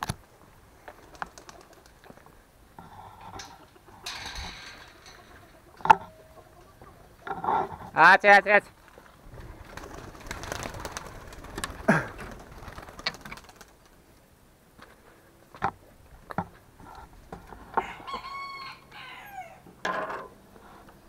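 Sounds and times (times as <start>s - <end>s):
rooster crowing: 17.7s - 19.7s.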